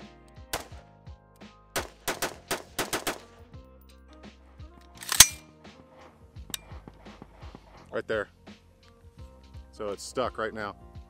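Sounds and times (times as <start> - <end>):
faint background music: 0.0 - 11.0
rifle shots: 1.8 - 3.3, 5.0 - 5.4.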